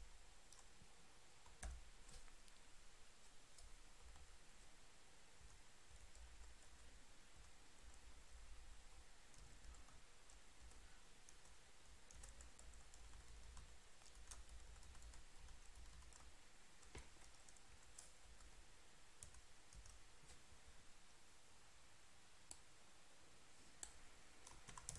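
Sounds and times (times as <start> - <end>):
low background hum: 0.0 - 24.9
computer keyboard and mouse clicks: 9.3 - 18.5, 23.8 - 24.9.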